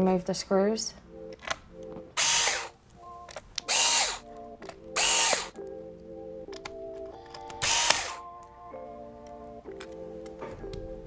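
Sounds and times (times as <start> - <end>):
background music sustained notes: 0.0 - 11.0
electric screwdriver whine: 2.2 - 5.6, 7.3 - 8.2.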